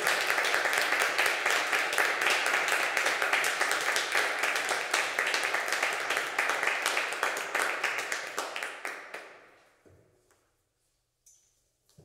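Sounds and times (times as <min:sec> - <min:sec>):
audience clapping: 0:00.0 - 0:09.6.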